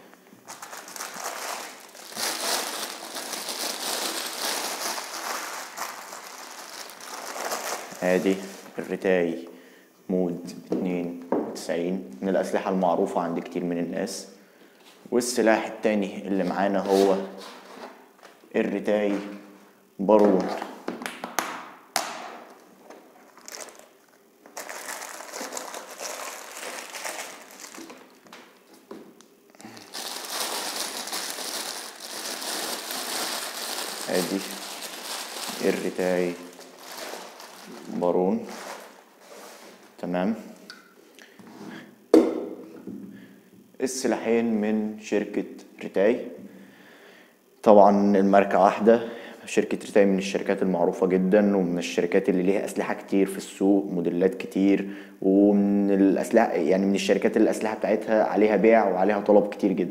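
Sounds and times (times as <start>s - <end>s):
plastic bag crinkling: 0.0s - 8.9s, 22.9s - 28.9s, 29.5s - 40.0s
plastic rustling and scraping: 0.0s - 8.9s, 22.8s - 40.0s.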